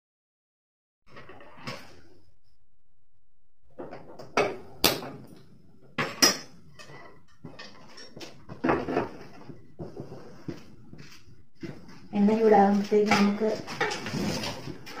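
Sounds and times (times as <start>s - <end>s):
pan scraping: 11.6s - 15.0s.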